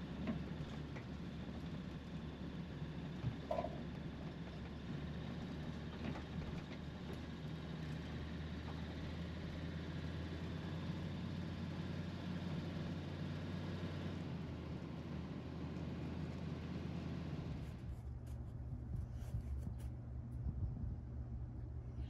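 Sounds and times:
van engine and road drone: 0.0 - 19.1.

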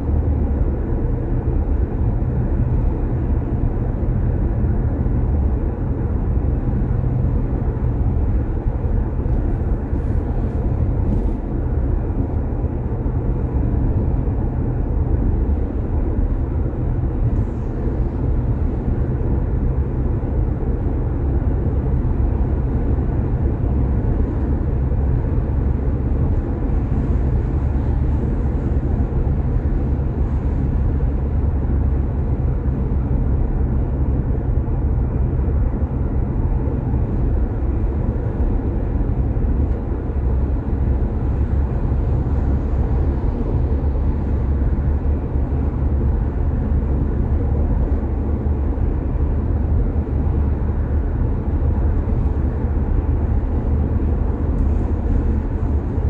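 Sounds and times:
car tyres and engine rumble: 0.0 - 56.0.

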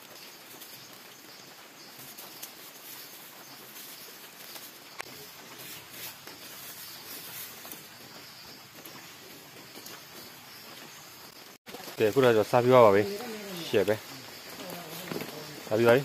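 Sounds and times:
high insect-like buzz: 12.2 - 16.0.

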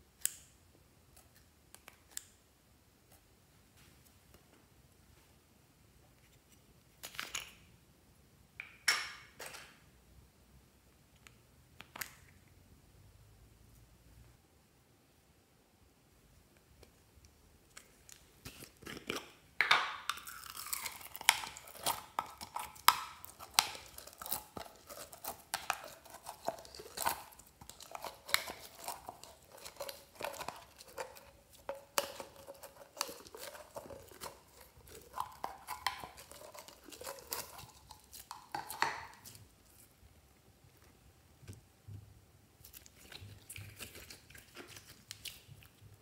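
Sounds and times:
sticky slime crackling: 20.0 - 40.0.

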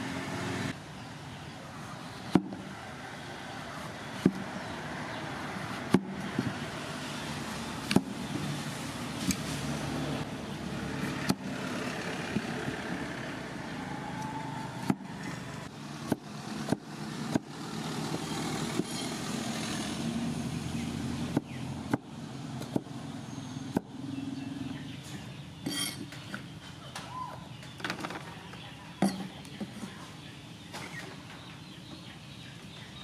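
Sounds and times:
cleaver chopping on wooden board: 2.3 - 2.6, 4.2 - 4.5, 5.8 - 6.6, 7.9 - 8.2, 16.0 - 19.0, 21.3 - 22.9.

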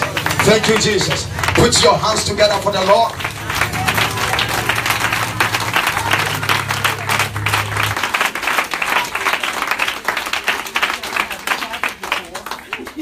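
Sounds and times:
low bass note: 0.0 - 8.9
congregation applauding: 0.0 - 13.0.

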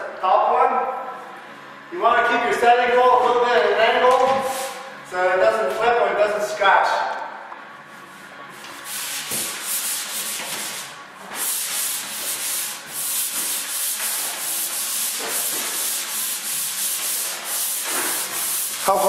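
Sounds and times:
sandpaper rasping on drywall: 4.4 - 4.9, 8.2 - 19.0.

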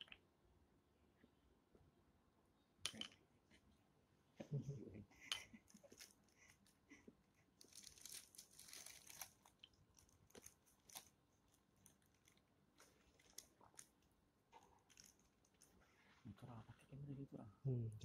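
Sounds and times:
soft rustle: 7.4 - 16.9.

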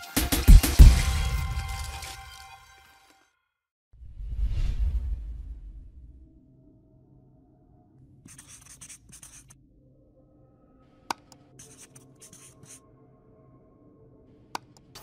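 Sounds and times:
marker scratching on paper: 8.3 - 9.6, 11.1 - 12.8.

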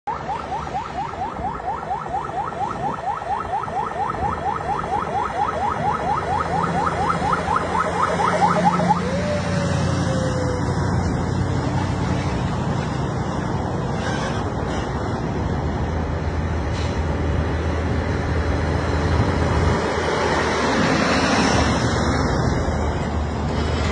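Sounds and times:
rapid chirping warning siren: 0.1 - 11.2
falling siren tone: 0.1 - 11.4
truck diesel engine passing: 4.6 - 23.9
trailer tyres rushing: 6.3 - 23.9.

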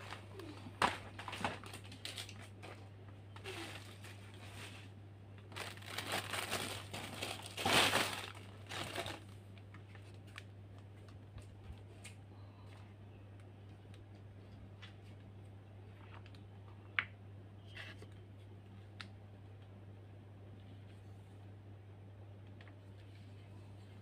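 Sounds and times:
plastic wrapping crinkling: 0.0 - 11.2
steady low hum: 0.0 - 24.0.

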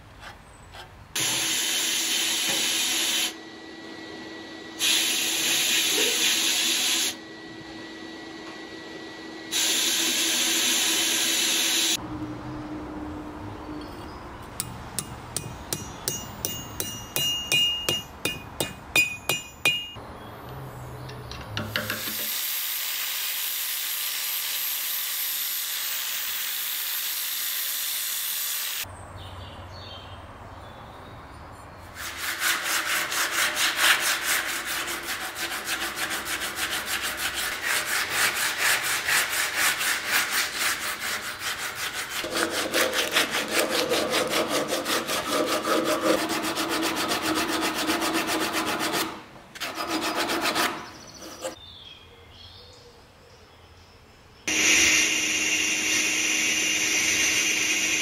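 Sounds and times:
hammer tapping metal sleeve: 14.6 - 20.0.

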